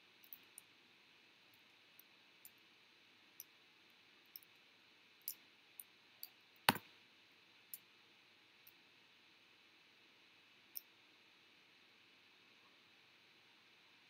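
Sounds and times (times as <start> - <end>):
faint room hiss: 0.0 - 14.0
small high-pitched clicks: 0.2 - 0.8, 3.4 - 6.8, 10.7 - 11.0.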